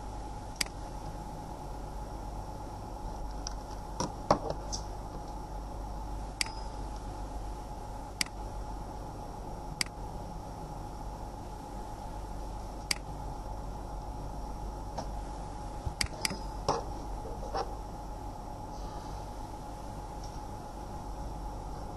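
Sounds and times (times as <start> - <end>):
electrical hum with faint whine: 0.0 - 21.9
computer mouse clicking: 0.6 - 0.8, 12.8 - 13.1.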